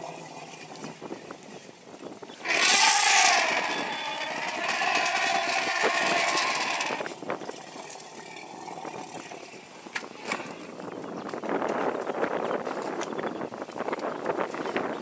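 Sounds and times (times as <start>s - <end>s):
elephant trumpeting: 2.4s - 7.1s.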